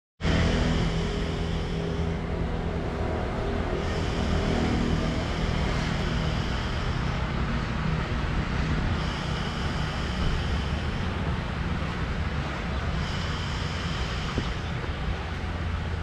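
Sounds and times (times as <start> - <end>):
low traffic rumble: 0.2 - 16.0.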